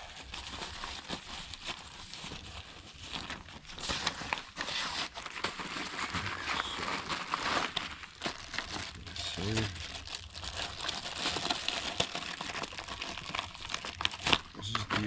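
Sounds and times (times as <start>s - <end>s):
plastic crinkling and crumpling: 0.0s - 15.0s.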